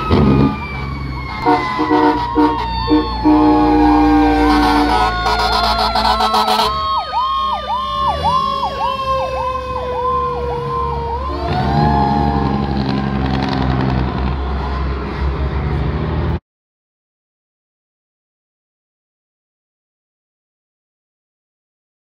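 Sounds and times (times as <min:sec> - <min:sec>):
electronic siren yelping rapidly: 0:00.0 - 0:13.4
siren tone falling and rising: 0:00.0 - 0:14.5.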